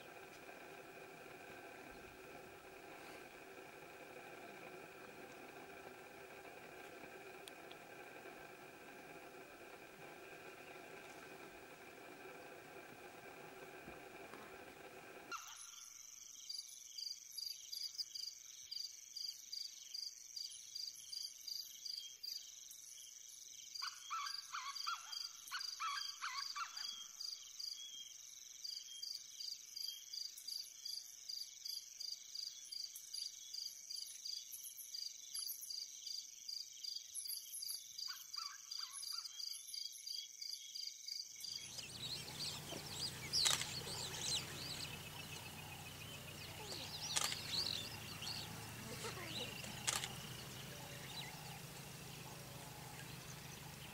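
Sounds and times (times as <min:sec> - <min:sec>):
low hum: 0:00.0 - 0:15.3, 0:41.6 - 0:53.9
insects trilling: 0:00.0 - 0:53.9
high bird chirps: 0:41.6 - 0:53.9
bird calling: 0:41.7 - 0:53.9.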